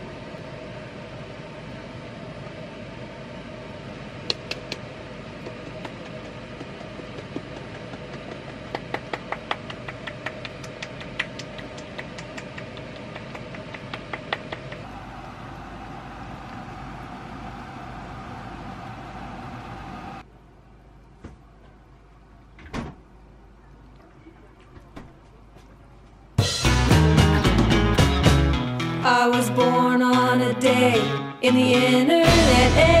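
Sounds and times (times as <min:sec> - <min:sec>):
kitchen background hum: 0:00.0 - 0:26.4.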